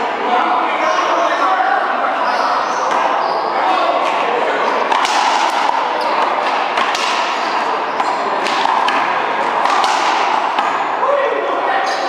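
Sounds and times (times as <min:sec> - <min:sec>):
steady background noise: 0:00.0 - 0:12.0
racquetball smacks: 0:04.8 - 0:10.9.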